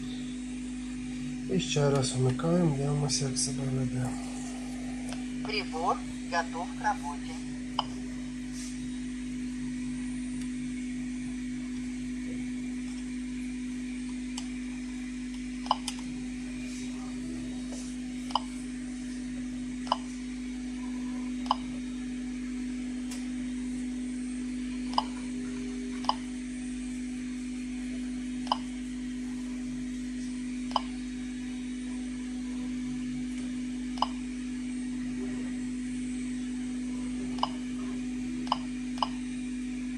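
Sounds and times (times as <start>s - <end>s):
steady hum: 0.0s - 39.9s
geiger counter clicking: 19.8s - 20.1s, 28.4s - 28.7s, 30.7s - 30.9s, 37.4s - 37.6s, 38.5s - 39.2s.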